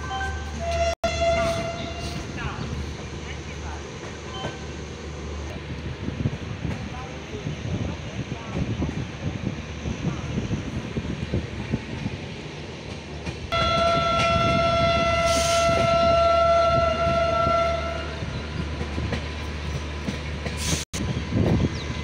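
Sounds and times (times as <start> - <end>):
train rumble and wheel clatter: 0.0 - 22.0
train horn long note: 0.6 - 2.2, 13.5 - 18.2.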